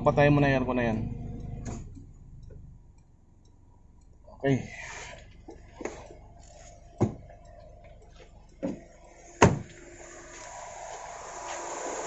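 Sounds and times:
car engine idling: 0.0s - 11.3s
knocks and thumps: 7.0s - 7.3s.

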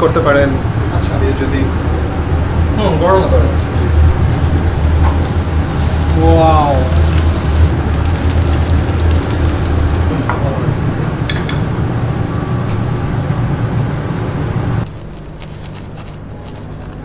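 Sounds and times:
low hum: 0.5s - 17.0s
oil sizzling in a deep fryer: 5.0s - 10.1s.

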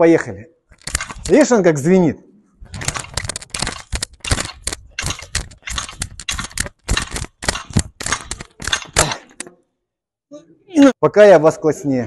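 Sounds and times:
metal bar clinking: 0.8s - 1.4s, 2.8s - 9.5s.

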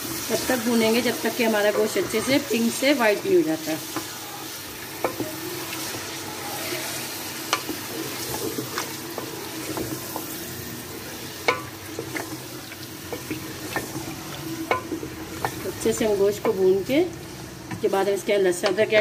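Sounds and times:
meat sizzling in hot oil: 0.0s - 19.0s.

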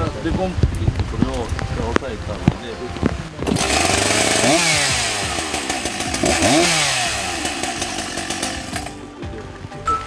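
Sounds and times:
chainsaw engine revving: 3.4s - 9.0s.

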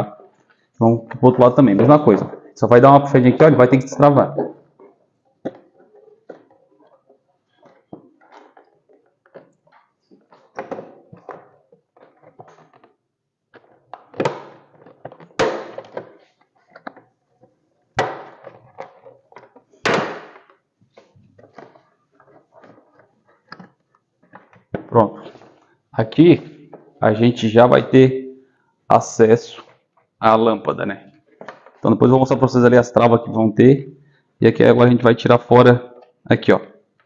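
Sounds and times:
plastic rubbing and creaking: 0.0s - 27.0s.

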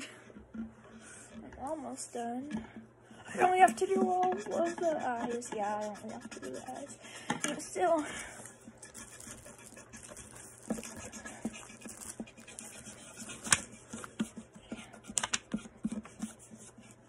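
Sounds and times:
pen scratching on paper: 3.4s - 7.8s, 8.6s - 17.0s.

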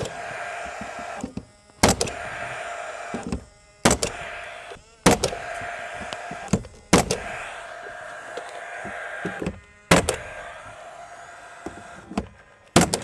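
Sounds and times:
nailer firing shots: 0.0s - 7.6s, 8.8s - 10.5s, 11.7s - 13.0s
nailer fan whirring: 0.0s - 13.0s.

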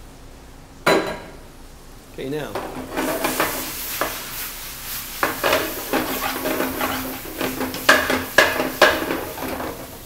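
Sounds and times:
fruit sizzling in a pan: 2.5s - 10.0s
spoon knocking against pan: 5.2s - 9.8s.

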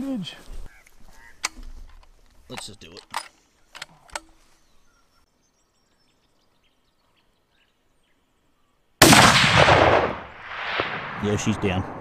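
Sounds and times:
rifle shot: 9.0s - 12.0s.

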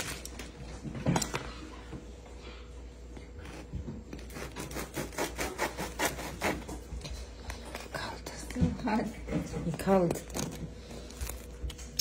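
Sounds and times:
knife sawing through bread crust: 3.4s - 6.9s.

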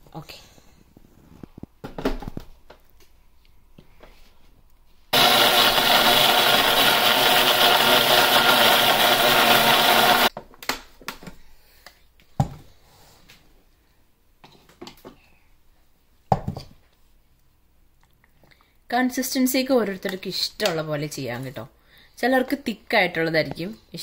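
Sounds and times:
mixer grinder blending: 5.2s - 10.3s.

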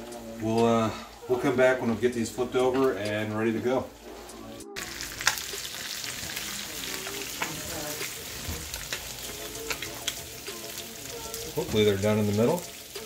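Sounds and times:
fish patties sizzling in oil: 4.8s - 13.0s.

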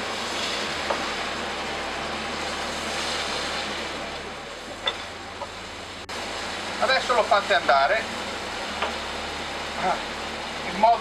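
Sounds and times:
meat and vegetables sizzling in pan: 0.0s - 7.4s.

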